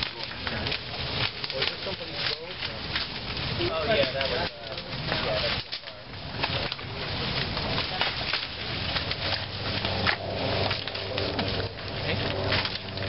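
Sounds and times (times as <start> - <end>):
dry sticks crackling and snapping: 0.0 - 13.0.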